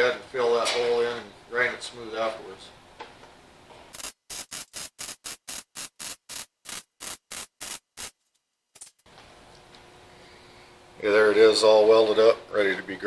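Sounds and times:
welder arc crackling: 3.9 - 8.3.

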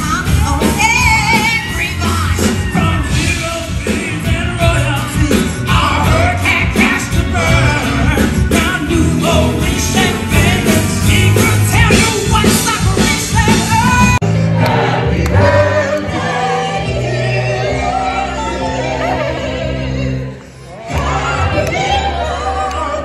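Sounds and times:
loud musical backing: 0.0 - 23.0.

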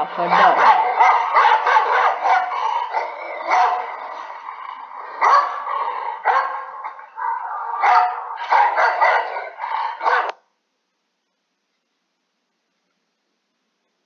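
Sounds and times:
dog barking: 0.2 - 10.4.

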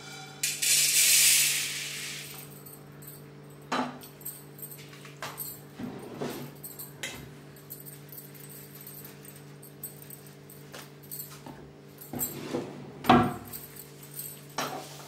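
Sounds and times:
peppercorns rattling: 0.4 - 2.8.

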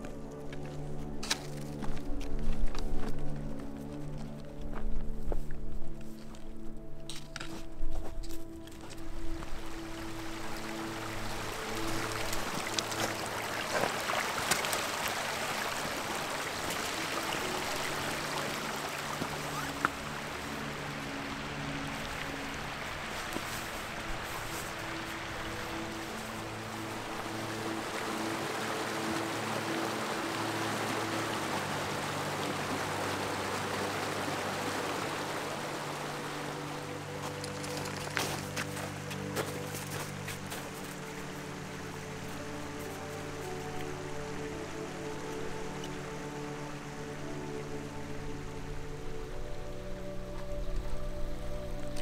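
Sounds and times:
footsteps clicking on stones: 0.0 - 9.1, 37.2 - 41.1
soft sustained music chords: 0.0 - 52.0
stream running over rocks: 6.2 - 52.0.

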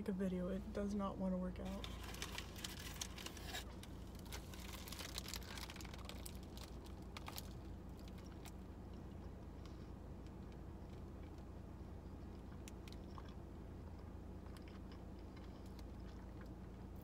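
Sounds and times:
steady low hum: 0.0 - 17.0
paper wrapper crinkling: 1.7 - 8.4
bagel bitten and chewed: 12.1 - 16.9.

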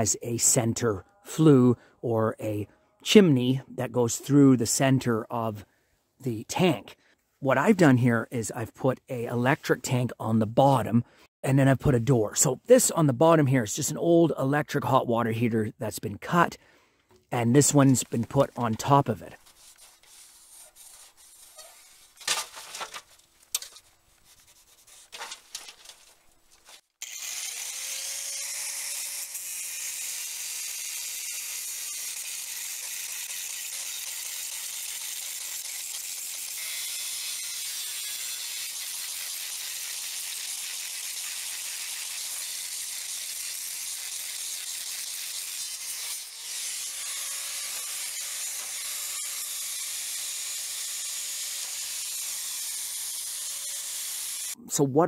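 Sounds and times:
angle grinder cutting steel: 26.7 - 54.6.

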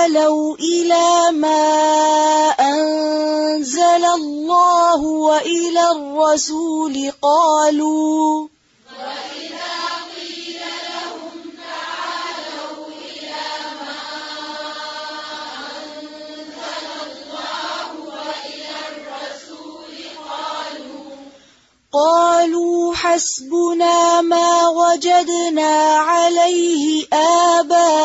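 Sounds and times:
group chanting in unison: 8.8 - 21.5.

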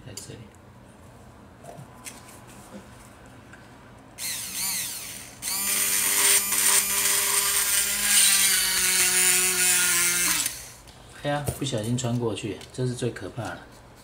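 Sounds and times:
mini drill whining: 4.2 - 10.8.

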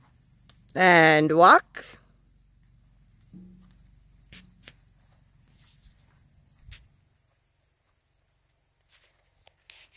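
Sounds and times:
crickets chirping: 0.0 - 9.9
low knock: 3.4 - 4.8.

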